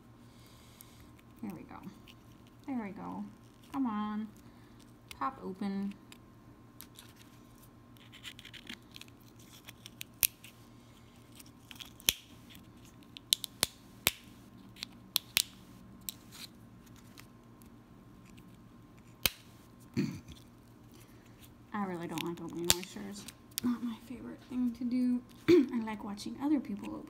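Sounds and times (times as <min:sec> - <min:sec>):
blades scratching on shell: 0:06.8 - 0:13.2
scissors snipping shell: 0:22.1 - 0:23.2.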